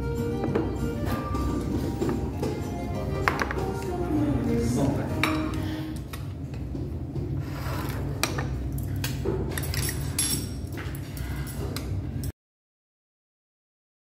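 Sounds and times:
steady low hum: 0.0 - 12.3
bowls and utensils clinking: 0.4 - 4.0, 4.8 - 5.9, 8.2 - 11.0.

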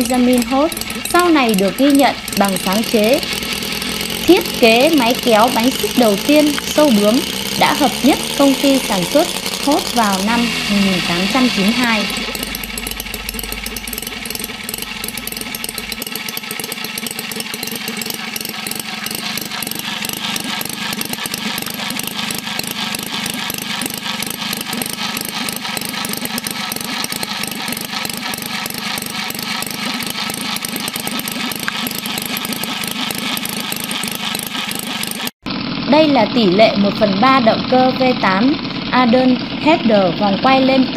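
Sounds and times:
model engine running steadily: 0.0 - 40.9.

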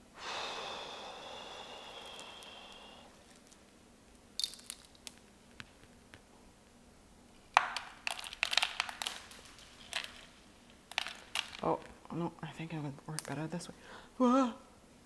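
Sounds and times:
clay pebbles clicking and rattling: 1.9 - 6.2, 7.5 - 12.0, 13.1 - 13.6.

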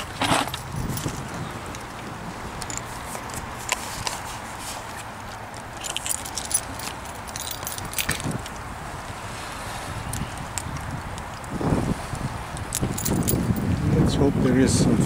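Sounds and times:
metallic jingling and clicks: 0.2 - 2.0, 2.6 - 4.2, 5.2 - 8.6, 12.7 - 13.7.

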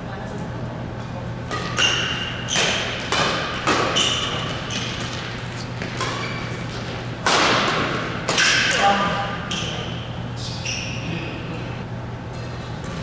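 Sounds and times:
rackets hitting shuttlecock: 1.4 - 9.8.

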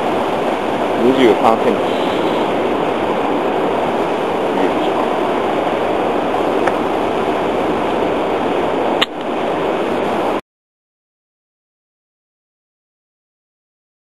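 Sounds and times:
flowing river water: 0.0 - 10.4.

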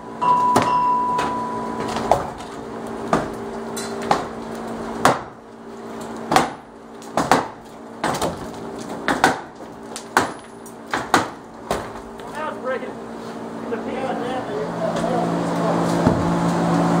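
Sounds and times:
faint machine hum: 0.0 - 17.0
wood splintering: 1.9 - 12.5
heavy blows on wooden framing: 3.0 - 3.5, 5.0 - 5.4, 6.3 - 12.2, 16.0 - 16.4.

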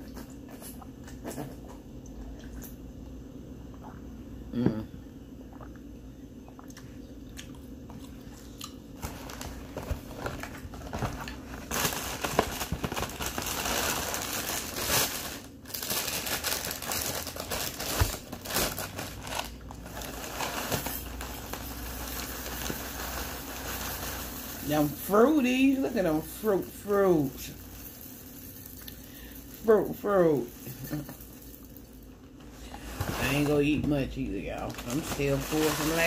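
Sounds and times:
plastic bag crinkling: 9.0 - 36.0
cereal pouring into bowl: 20.7 - 32.0, 34.7 - 36.0.

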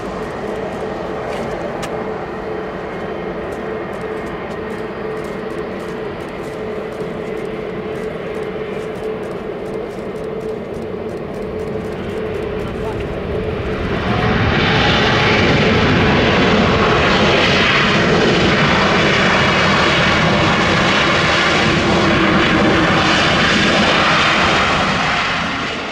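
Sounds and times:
jet engines running loud: 0.0 - 25.9.

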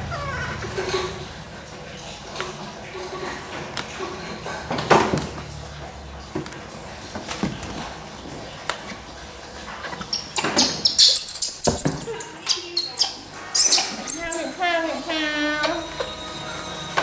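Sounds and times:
baby monkey squealing: 10.1 - 15.7.

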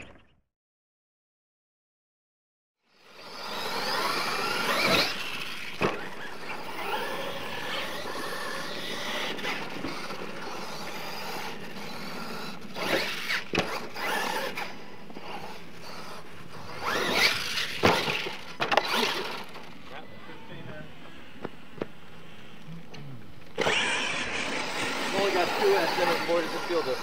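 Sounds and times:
toy truck motor whining: 3.0 - 20.6, 23.4 - 27.0
sharp knocks from landings: 12.7 - 14.6, 17.0 - 19.7.

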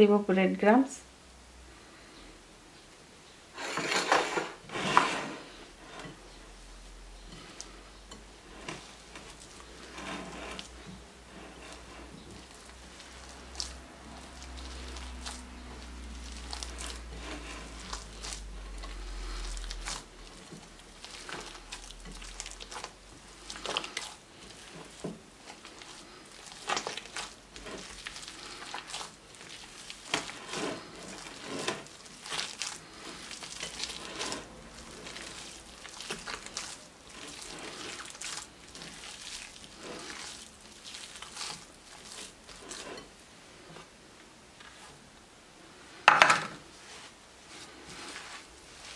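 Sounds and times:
hands squishing mashed potato: 7.2 - 44.0, 46.6 - 48.9.

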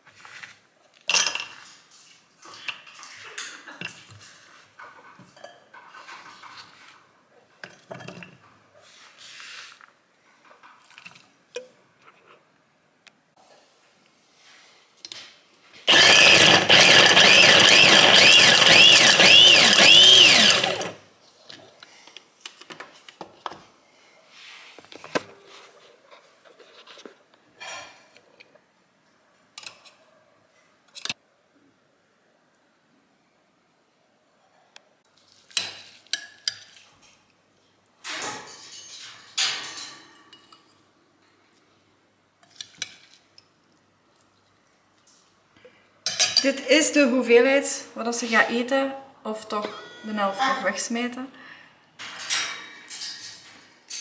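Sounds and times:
electric food chopper running: 15.9 - 21.0.

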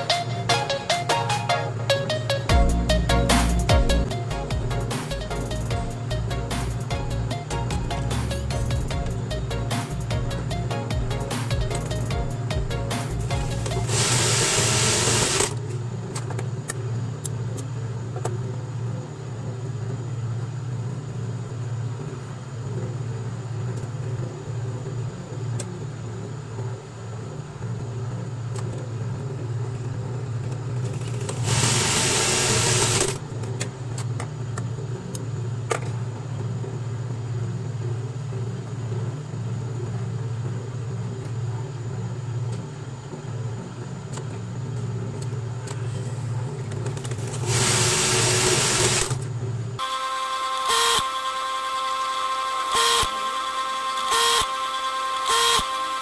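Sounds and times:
sewing machine motor humming: 5.4 - 15.6, 31.2 - 33.2, 47.1 - 49.2, 49.8 - 56.0
sewing machine running burst: 13.2 - 15.6, 31.3 - 33.2, 47.2 - 49.2, 49.8 - 56.0.

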